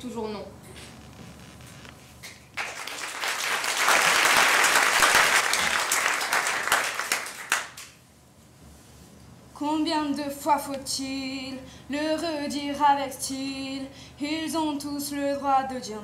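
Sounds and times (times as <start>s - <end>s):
audience applauding: 2.6s - 8.0s.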